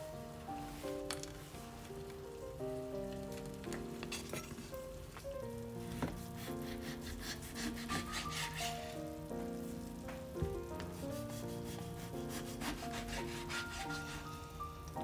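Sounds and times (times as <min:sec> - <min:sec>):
soft instrumental music: 0:00.0 - 0:15.0
knife slicing meat on board: 0:12.3 - 0:14.2.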